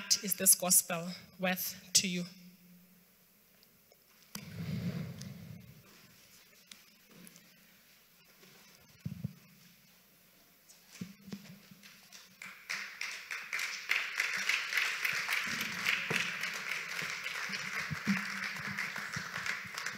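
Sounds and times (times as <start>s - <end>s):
audience applause: 12.3s - 19.9s.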